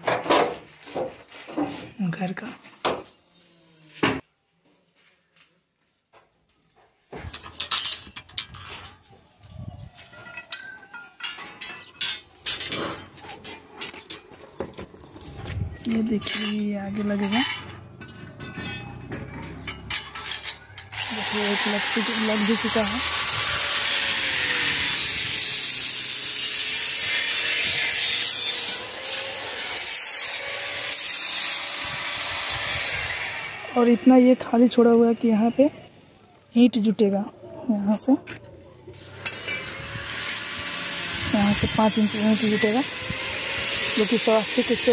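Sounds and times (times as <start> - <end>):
steel pipes clinking and knocking: 7.2 - 8.9, 10.1 - 14.8, 15.8 - 21.0
electric arc welding crackling hiss: 21.0 - 32.6.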